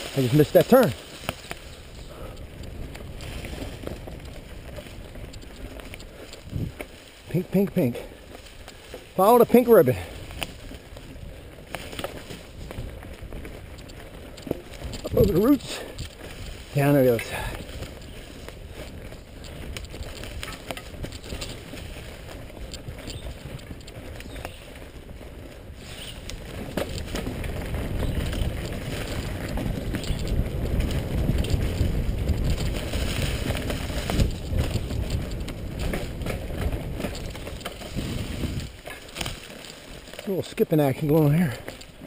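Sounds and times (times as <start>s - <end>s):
bike tyres rolling over leaves: 0.0s - 42.0s
bike knocking over bumps: 26.4s - 40.2s.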